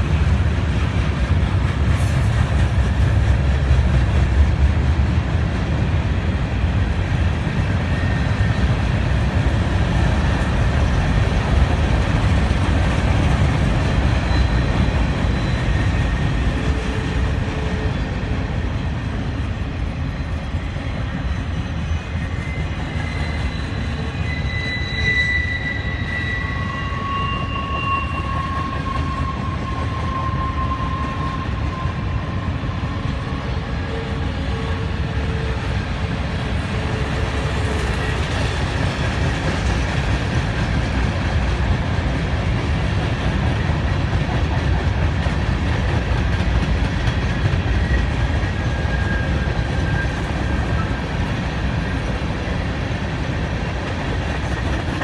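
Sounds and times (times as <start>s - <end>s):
train wheels rumbling on rail: 0.0s - 55.0s
wheel flange squeals: 14.2s - 16.3s, 21.4s - 35.6s.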